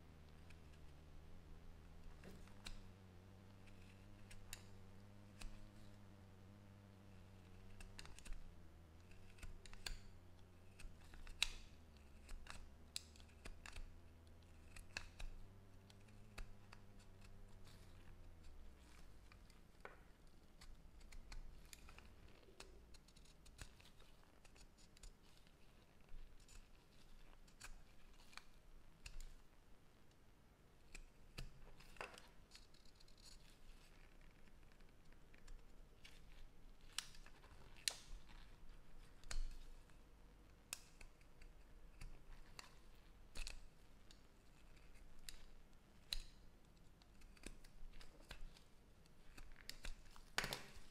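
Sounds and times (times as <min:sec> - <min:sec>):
low steady hum: 0:00.0 - 0:32.6
hand tool clicks and snips: 0:03.6 - 0:06.0, 0:07.5 - 0:25.2, 0:40.6 - 0:50.9.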